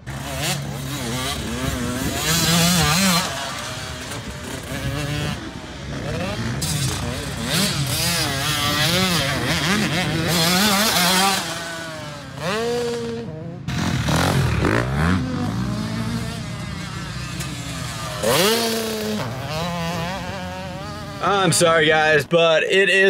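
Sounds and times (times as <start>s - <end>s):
dirt bike engines revving: 0.0s - 23.0s.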